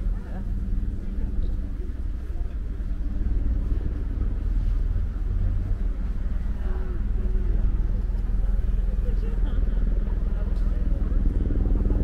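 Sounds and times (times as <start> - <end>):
faint voices: 0.0 - 12.0
low crowd rumble: 0.0 - 12.0.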